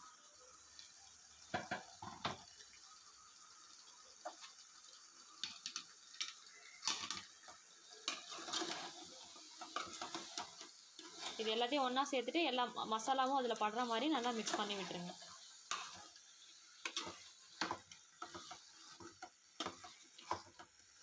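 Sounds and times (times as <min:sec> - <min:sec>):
ladle scraping metal pot: 0:08.1 - 0:11.5.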